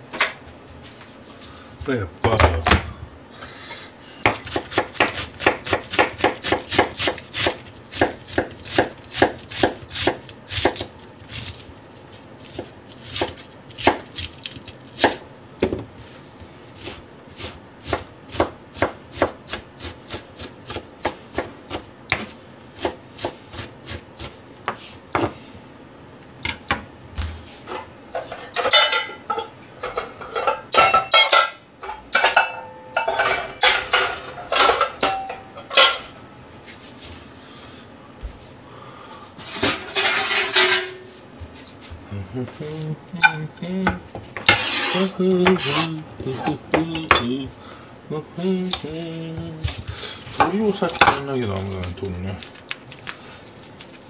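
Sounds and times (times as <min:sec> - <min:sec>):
knife chopping on plastic board: 0:04.2 - 0:10.9.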